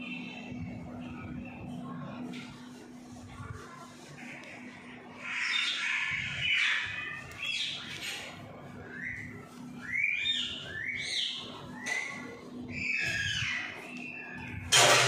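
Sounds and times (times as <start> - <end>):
parakeets chattering harshly: 5.0 - 9.2, 9.8 - 14.3.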